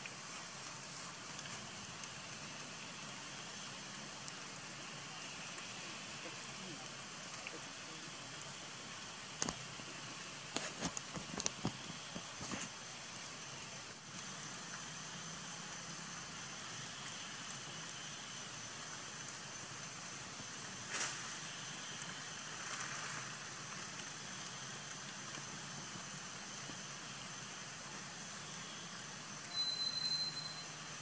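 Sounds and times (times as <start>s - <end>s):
outdoor background hiss: 0.0s - 31.0s
short rustle: 20.9s - 21.3s
faint high tone: 29.5s - 30.8s.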